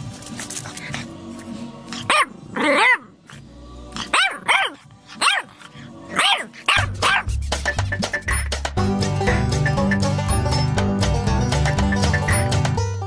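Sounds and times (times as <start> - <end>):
music: 0.0 - 13.0
puppy yapping: 4.0 - 7.3.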